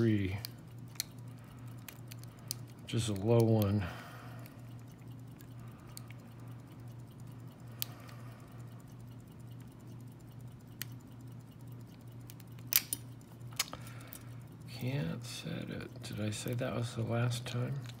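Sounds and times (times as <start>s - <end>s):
lock pick ticks and clicks: 0.0s - 3.8s, 4.4s - 14.8s.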